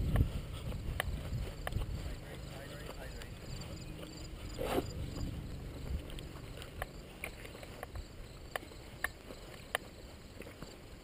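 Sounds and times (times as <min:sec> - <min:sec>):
footsteps through grass: 0:00.0 - 0:11.0
low rumbling: 0:03.3 - 0:07.2.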